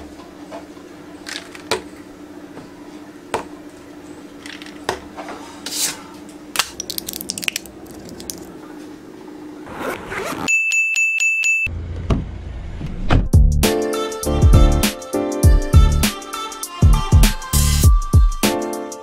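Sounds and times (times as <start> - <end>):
foil blister pack crinkling: 6.6 - 8.5.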